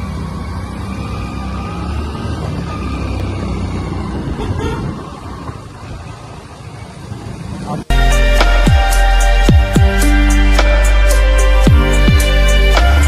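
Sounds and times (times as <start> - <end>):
wind rumble on microphone: 3.4 - 7.9.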